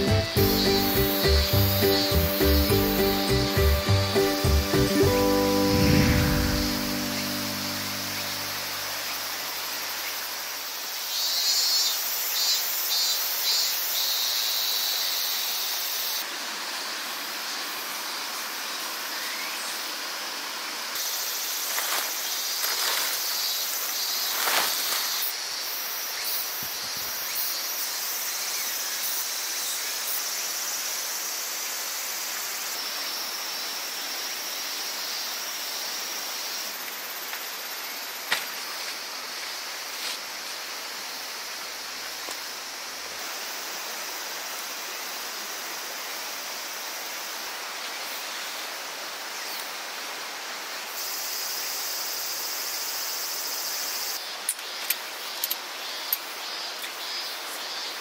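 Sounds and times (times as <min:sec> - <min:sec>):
river flowing: 0:00.0 - 0:11.0
insects calling: 0:00.0 - 0:58.0.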